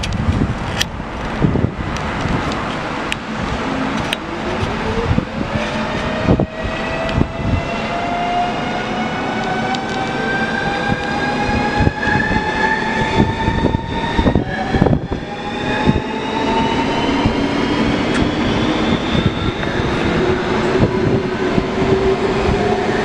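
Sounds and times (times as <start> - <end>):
rising train whine: 0.0 - 23.0
train rumble: 0.0 - 23.0
train clicks: 3.9 - 4.8.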